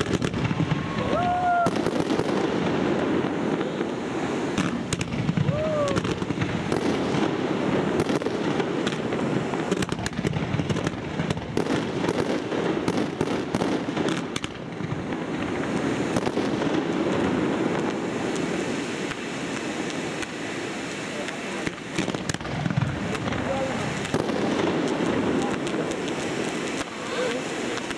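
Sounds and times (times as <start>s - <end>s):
firework fountains hissing and crackling: 0.0s - 27.9s.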